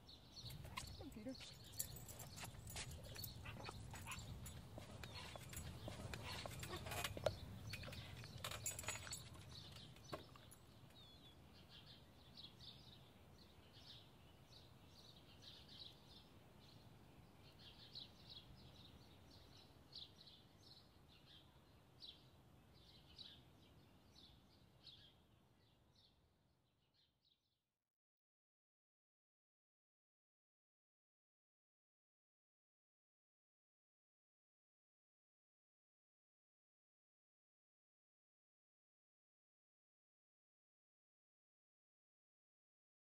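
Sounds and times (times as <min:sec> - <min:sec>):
small birds chirping: 0:00.0 - 0:26.2.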